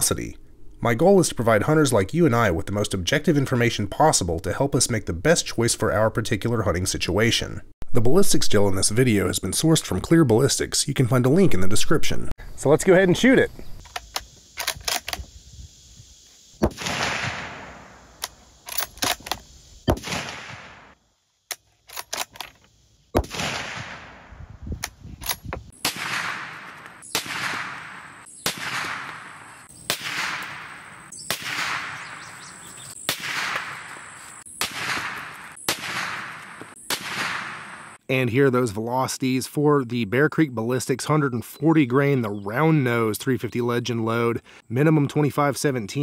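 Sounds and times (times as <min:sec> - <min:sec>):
rifle bolt clicks: 0:13.8 - 0:15.2, 0:18.2 - 0:19.4, 0:21.5 - 0:22.6
rifle shots with echo: 0:16.6 - 0:18.2, 0:19.9 - 0:21.0, 0:23.2 - 0:24.4, 0:25.8 - 0:34.0, 0:34.6 - 0:38.0.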